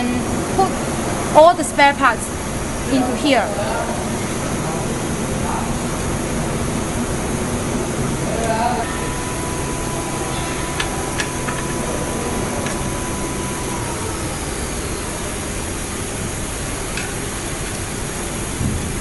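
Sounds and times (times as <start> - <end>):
room noise hiss and hum: 0.0 - 19.0.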